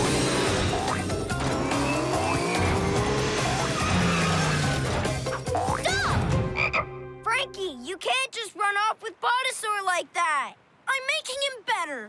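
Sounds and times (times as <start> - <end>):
cartoon engines whining: 0.0 - 5.9
upbeat background music: 0.0 - 7.8
tyres squealing: 0.4 - 6.0.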